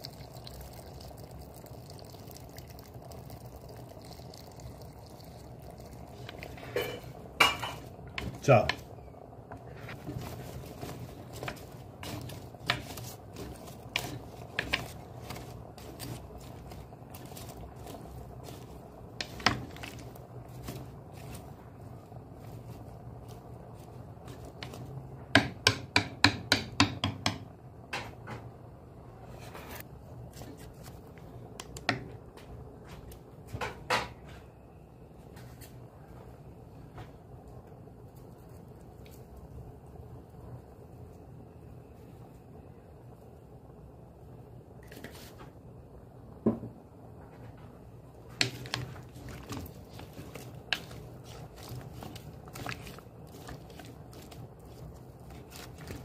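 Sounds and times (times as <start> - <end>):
stew bubbling in a pot: 0.0 - 28.0, 37.2 - 56.0
utensil knocking on pot: 24.6 - 27.5.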